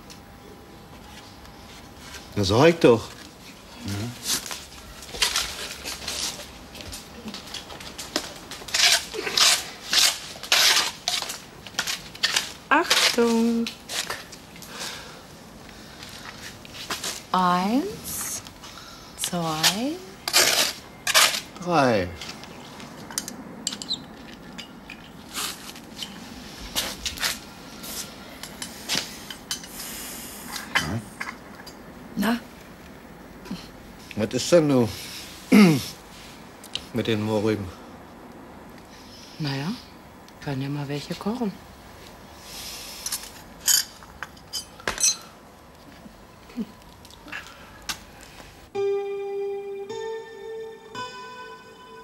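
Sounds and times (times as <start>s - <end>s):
china clinking: 43.6s - 45.3s.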